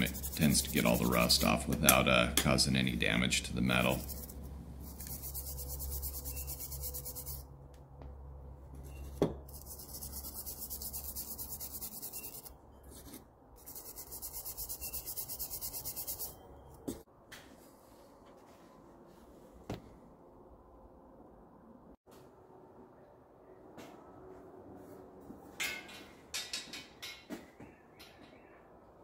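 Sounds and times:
stiff brush scrubbing metal: 0.0s - 1.7s, 3.6s - 7.4s.

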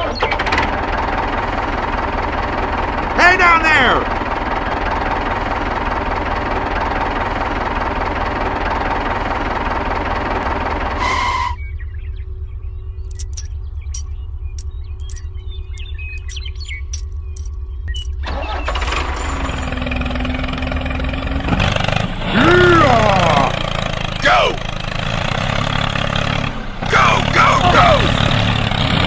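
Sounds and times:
rush of engine noise: 16.2s - 29.0s.

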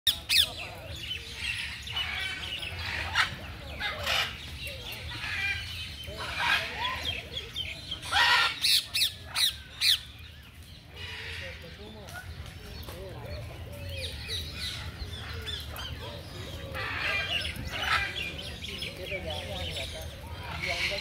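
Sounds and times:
parrots squawking: 1.5s - 4.4s, 5.1s - 7.2s, 8.0s - 10.1s, 16.6s - 18.2s.

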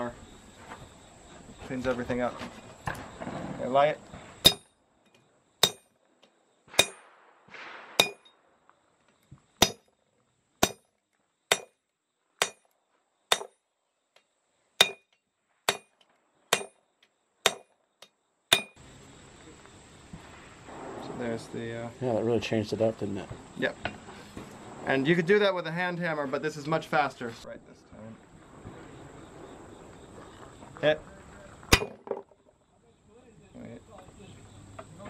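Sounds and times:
sledgehammer striking metal: 4.4s - 4.7s, 5.6s - 5.9s, 6.7s - 7.1s, 8.0s - 8.3s, 9.6s - 9.9s, 10.6s - 10.9s, 11.5s - 11.8s, 12.4s - 12.7s, 13.3s - 13.6s, 14.8s - 15.1s, 15.7s - 15.9s, 16.5s - 16.8s, 17.4s - 17.7s, 18.5s - 18.8s, 31.7s - 32.0s.

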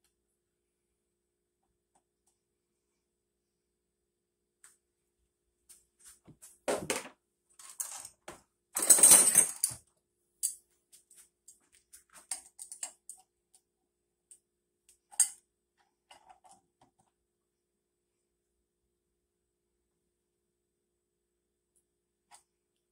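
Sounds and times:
metal tools clanking: 8.8s - 9.8s.

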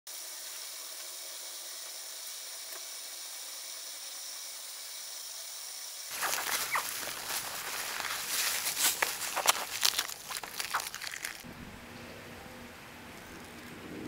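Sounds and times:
steady high hiss: 0.1s - 9.9s
hands digging through sand and leaves: 6.1s - 11.5s.

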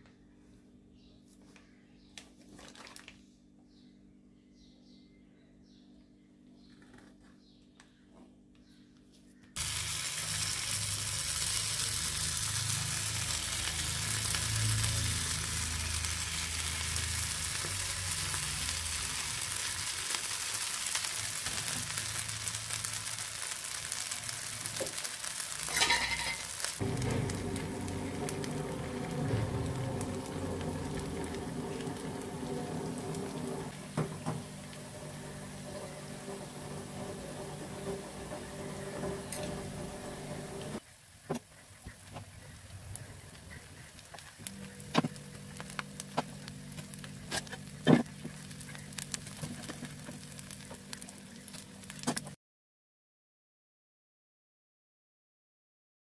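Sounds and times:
deep-frying sizzle in hot oil: 9.6s - 52.4s.

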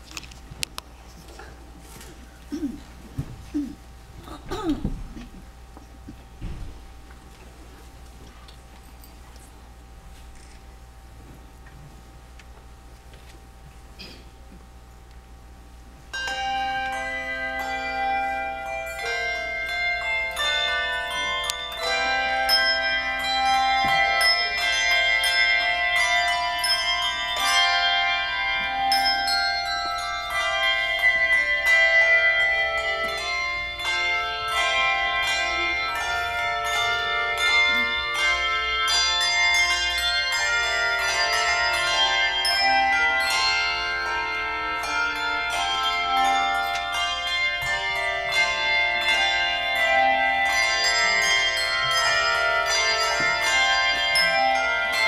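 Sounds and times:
handbell choir playing: 16.1s - 55.0s.

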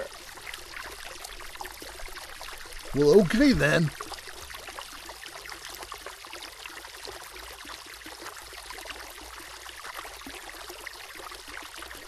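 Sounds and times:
river water babbling: 3.0s - 3.9s.

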